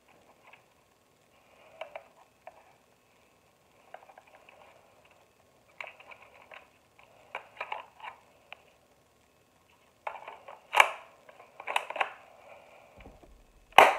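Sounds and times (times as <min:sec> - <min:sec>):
plastic pistol clicks and rattles: 0:10.0 - 0:12.2.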